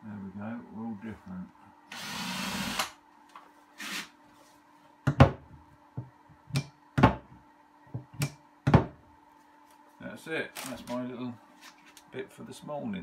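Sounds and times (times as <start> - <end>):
cupboard door knocking shut: 5.1 - 5.4, 8.7 - 9.0.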